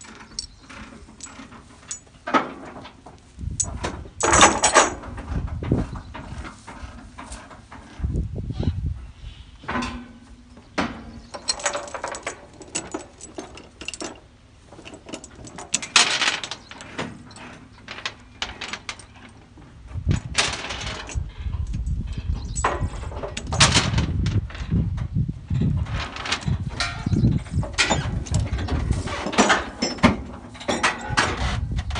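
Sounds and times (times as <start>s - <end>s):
chains clanking on metal deck: 0.0s - 3.0s, 3.6s - 5.4s, 11.2s - 24.7s, 25.9s - 31.6s.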